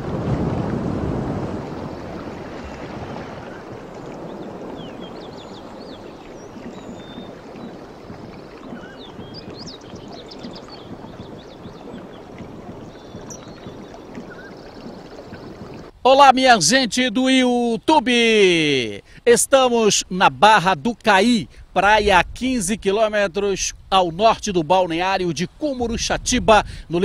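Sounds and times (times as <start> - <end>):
surf breaking on a beach: 0.0 - 15.9
wind on the microphone: 0.0 - 15.9, 21.4 - 24.6, 25.7 - 27.0.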